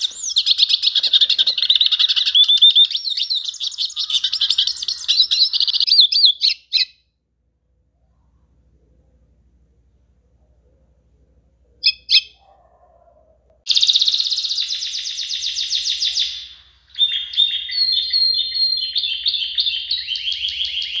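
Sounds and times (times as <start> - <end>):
canary singing: 0.0 - 7.1, 11.8 - 13.0, 13.7 - 21.0.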